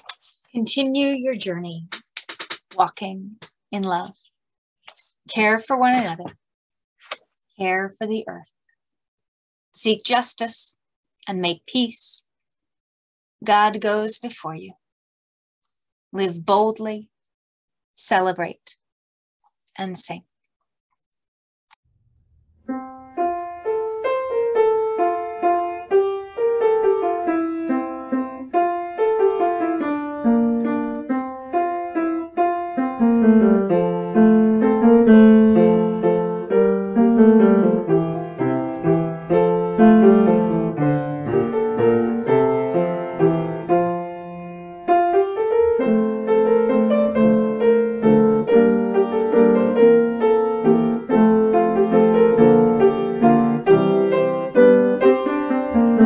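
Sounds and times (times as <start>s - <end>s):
solo piano playing: 22.6s - 56.0s.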